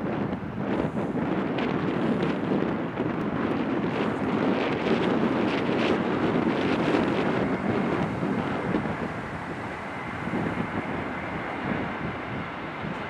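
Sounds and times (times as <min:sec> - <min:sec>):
jet engine rumble: 0:00.0 - 0:13.0
wind buffeting microphone: 0:00.0 - 0:13.0
faint high whine: 0:05.2 - 0:13.0.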